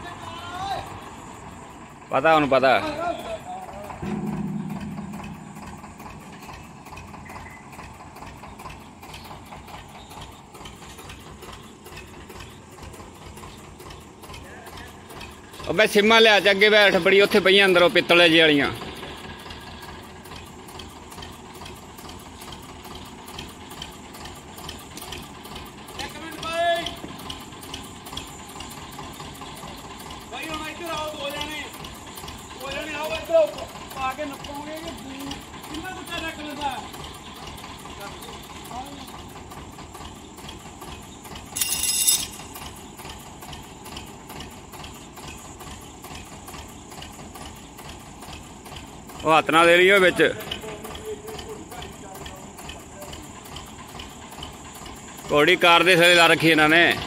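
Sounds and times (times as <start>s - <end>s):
diesel engine idling: 0.0s - 41.6s, 42.3s - 57.0s.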